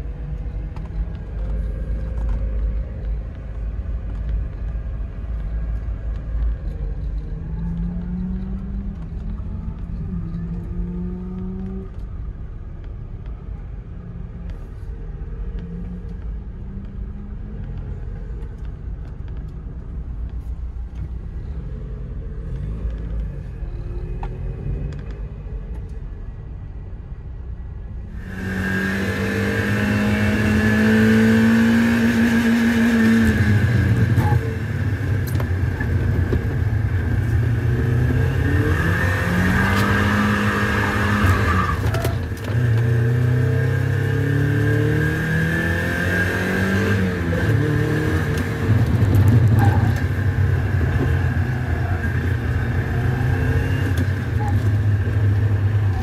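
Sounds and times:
car engine revving: 28.2s - 56.0s.

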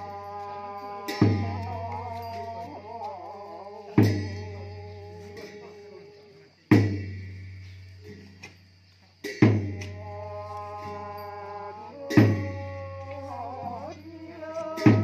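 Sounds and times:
person singing: 0.0s - 6.3s, 9.7s - 15.0s
cymbals ringing: 0.0s - 8.6s, 9.2s - 15.0s.

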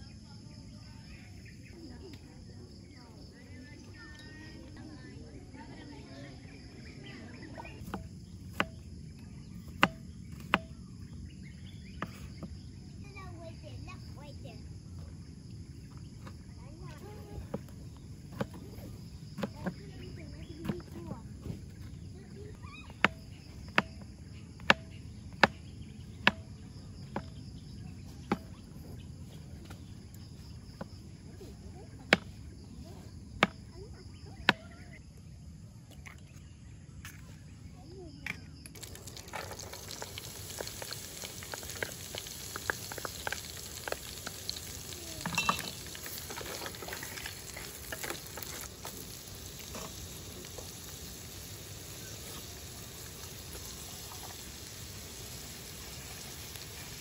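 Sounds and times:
knife chopping on wooden board: 7.9s - 8.8s, 9.7s - 10.8s, 23.0s - 24.0s, 24.6s - 25.6s, 26.2s - 26.5s
vegetables sizzling in a pan: 38.8s - 57.0s.

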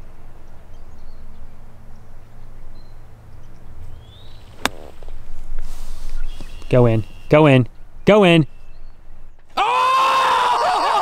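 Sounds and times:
golf club striking ball: 4.5s - 5.3s
faint bird chirps: 6.1s - 9.4s.

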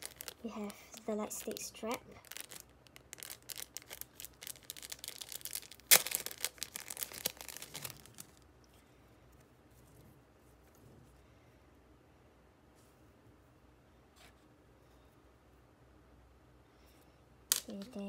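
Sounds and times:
plastic packaging crinkling: 0.0s - 8.4s.

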